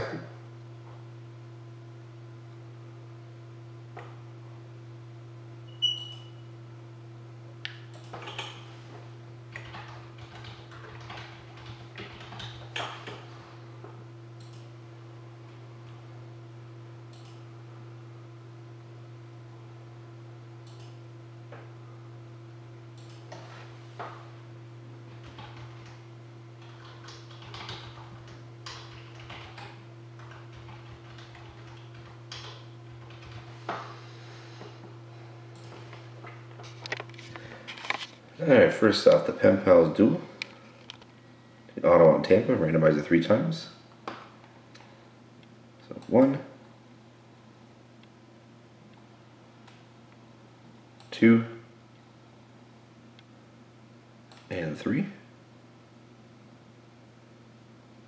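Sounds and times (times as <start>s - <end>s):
low electrical hum: 0.0s - 58.0s
small clicks and light clattering: 40.4s - 41.2s.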